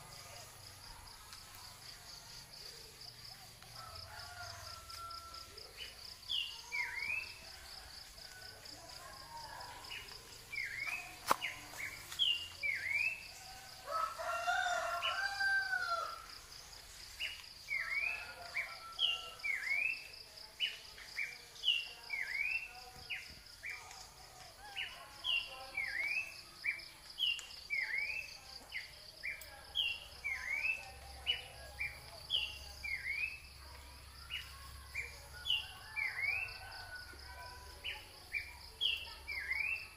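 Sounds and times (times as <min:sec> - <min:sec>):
rooster crowing: 0:03.8 - 0:05.5, 0:13.6 - 0:16.3.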